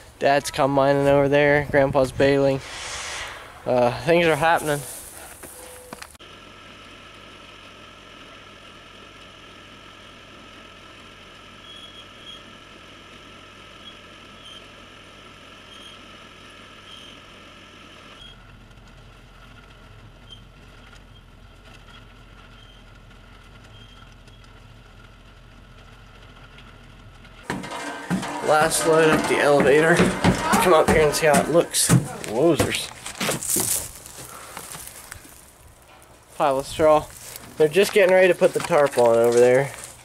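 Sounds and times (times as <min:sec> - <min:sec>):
tractor idling: 0:18.4 - 0:40.0.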